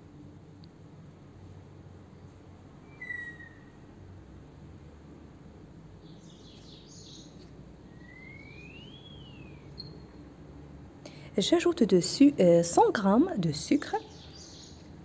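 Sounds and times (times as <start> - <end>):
whistled chirp: 2.9 - 3.7, 7.9 - 10.0.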